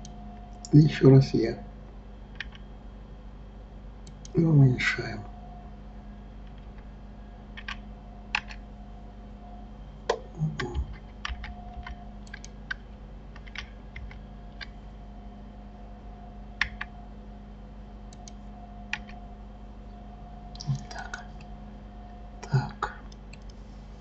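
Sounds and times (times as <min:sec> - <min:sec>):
low steady hum: 0:00.0 - 0:24.0
keyboard and mouse clicks: 0:02.3 - 0:02.6, 0:07.6 - 0:08.6, 0:10.1 - 0:14.8, 0:16.6 - 0:16.9, 0:18.1 - 0:19.2, 0:20.5 - 0:21.5, 0:22.4 - 0:23.6.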